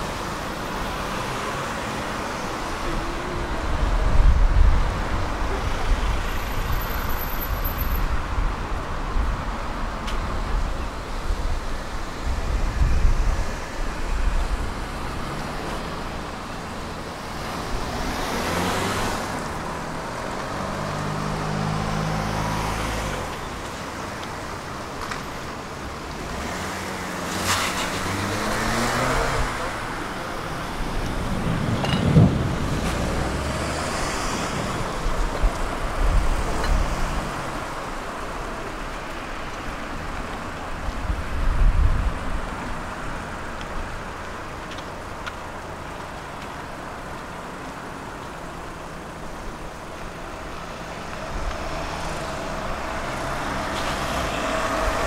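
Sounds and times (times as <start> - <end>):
tram rumbling along: 29.4 - 33.9.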